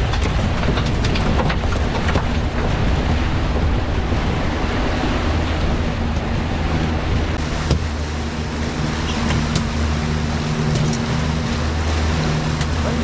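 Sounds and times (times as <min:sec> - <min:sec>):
outboard motor running: 0:00.0 - 0:13.0
water rushing in wake: 0:00.0 - 0:13.0.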